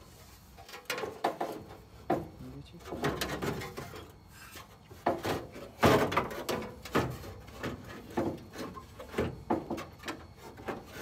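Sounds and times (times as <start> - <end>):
scraping and knocking in steel door: 5.0 - 11.0.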